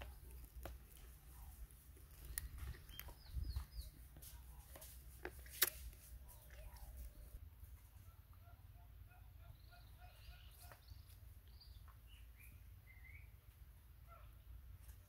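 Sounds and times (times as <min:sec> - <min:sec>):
faint birds calling: 0:00.0 - 0:15.0.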